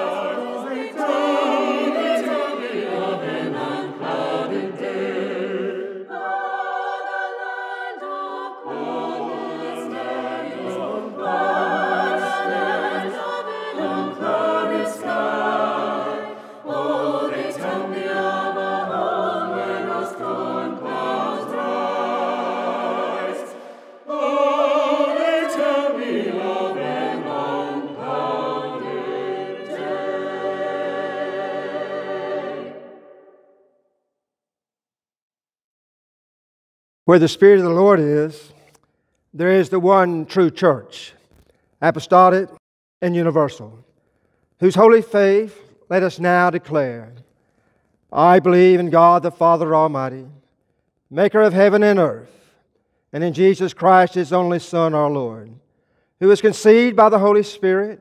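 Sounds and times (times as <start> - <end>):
choir singing in harmony: 0.0 - 33.7.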